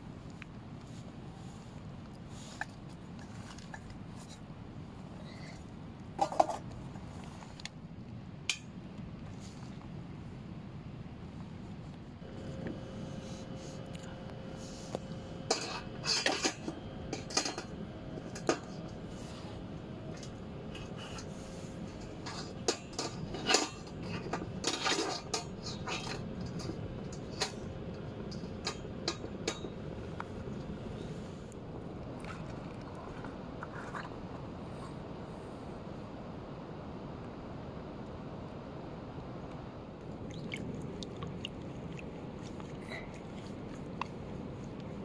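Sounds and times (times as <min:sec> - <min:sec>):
metal grill grate clinking: 0:20.2 - 0:27.6.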